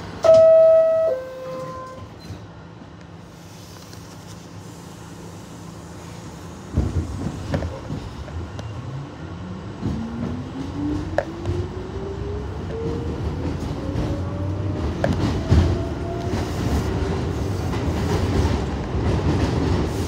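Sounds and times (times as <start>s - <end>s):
train doors banging shut: 0.0s - 2.5s
two-note door chime: 0.2s - 2.1s.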